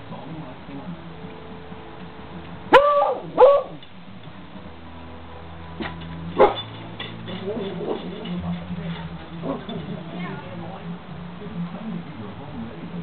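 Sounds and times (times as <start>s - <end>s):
dog barking: 2.7s - 3.8s, 6.4s - 6.7s.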